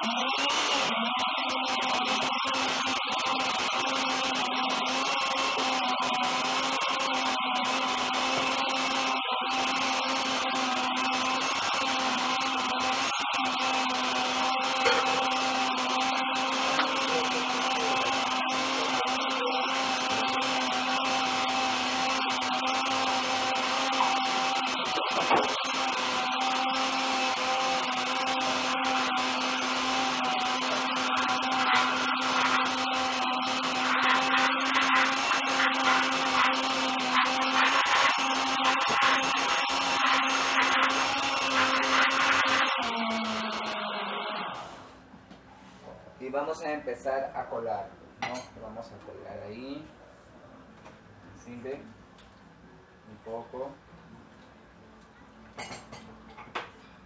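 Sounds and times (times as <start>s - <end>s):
electric blender motor running: 0.0s - 44.9s.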